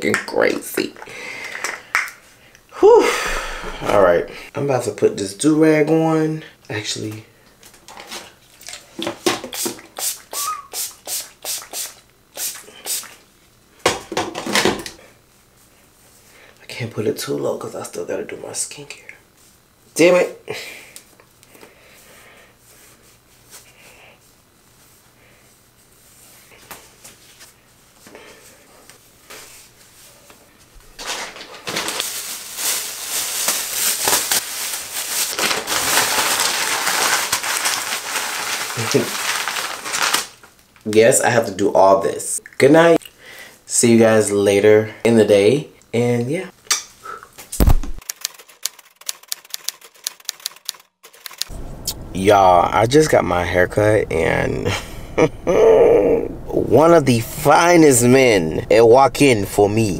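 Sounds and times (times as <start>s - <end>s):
spray bottle spritzing: 9.5s - 13.2s
plastic shower cap crinkling: 31.0s - 40.9s.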